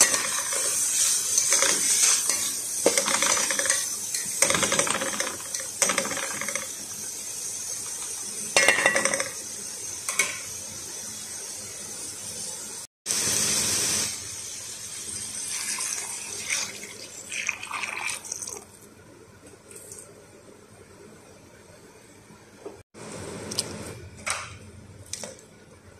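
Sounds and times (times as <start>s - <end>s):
water pouring into pot: 14.0s - 18.8s.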